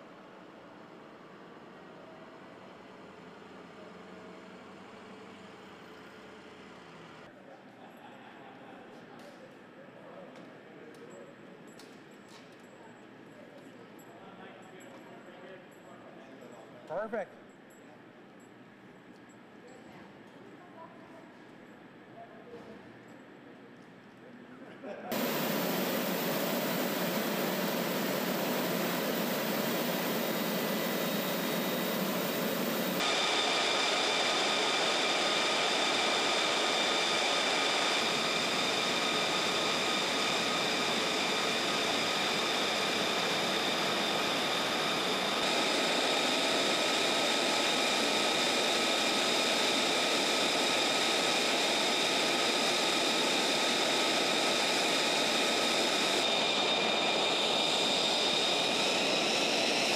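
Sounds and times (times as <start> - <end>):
high turbine whine: 25.1 - 59.9
jet engines rushing hiss: 25.1 - 59.9.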